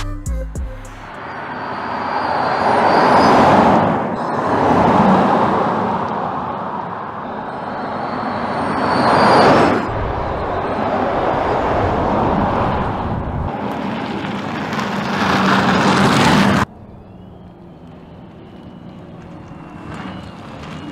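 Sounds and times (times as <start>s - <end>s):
electric car driving past: 1.1s - 20.9s
faint high whine: 16.7s - 20.9s.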